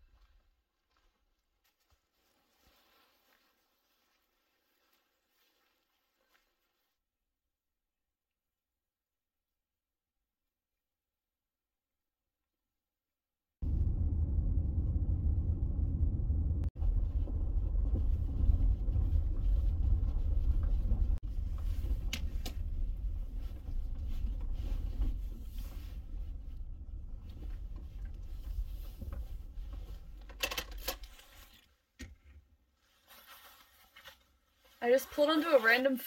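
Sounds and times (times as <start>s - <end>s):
car interior driving rumble: 13.6s - 30.3s.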